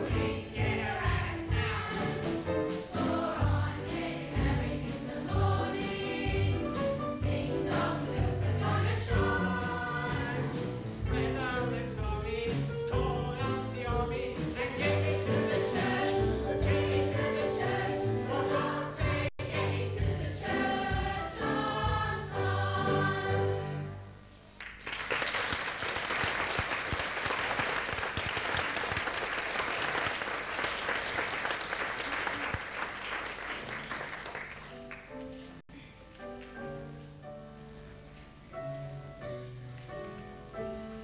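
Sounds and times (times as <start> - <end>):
stage chorus singing: 0.0 - 24.0
audience applause: 24.6 - 35.4.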